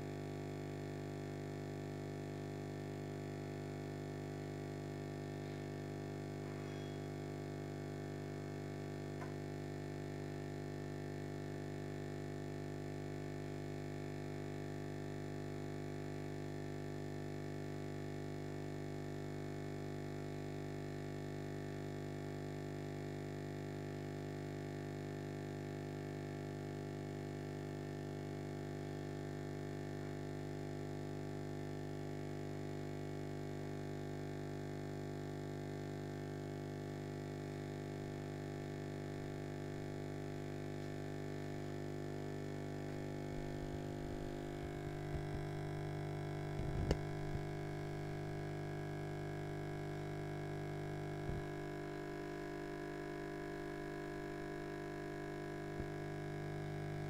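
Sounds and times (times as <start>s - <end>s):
aquarium air pump humming: 0.0s - 15.7s, 37.2s - 57.0s.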